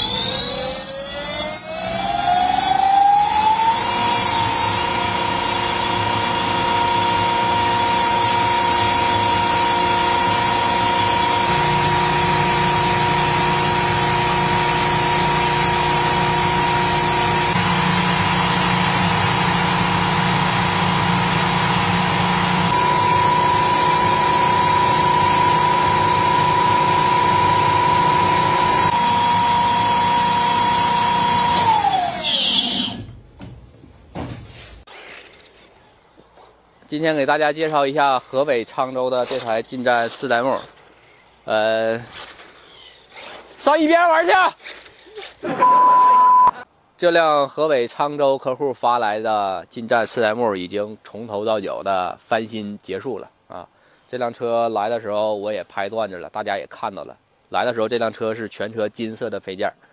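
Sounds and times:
electric hub motor whining: 0:00.0 - 0:33.1.

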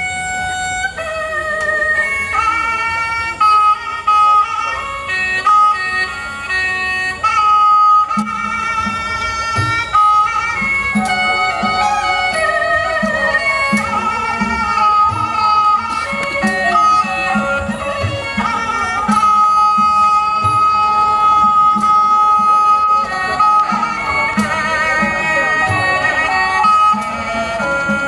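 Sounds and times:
pitched melody line: 0:09.4 - 0:28.0.

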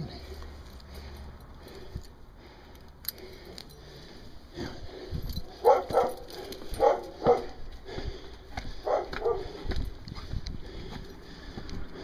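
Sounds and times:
dog breathing in bursts: 0:00.1 - 0:12.0
footsteps on a path: 0:03.2 - 0:12.0.

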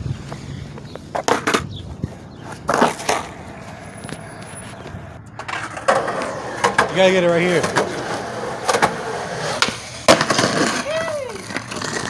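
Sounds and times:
skateboard wheels rolling on concrete: 0:00.0 - 0:12.0
skateboard hitting ground: 0:01.1 - 0:01.7, 0:02.6 - 0:04.3, 0:05.4 - 0:12.0.

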